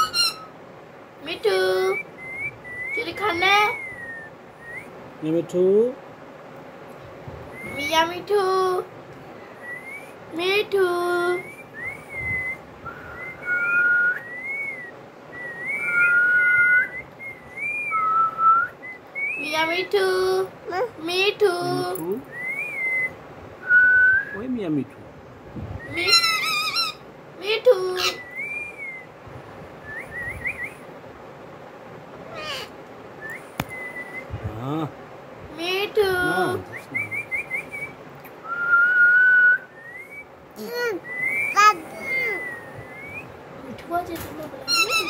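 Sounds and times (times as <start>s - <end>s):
parrot whistling: 0.0s - 0.6s, 1.8s - 4.9s, 11.6s - 19.4s, 25.8s - 27.0s, 28.0s - 29.1s, 32.3s - 34.3s, 36.4s - 43.4s, 44.7s - 45.0s.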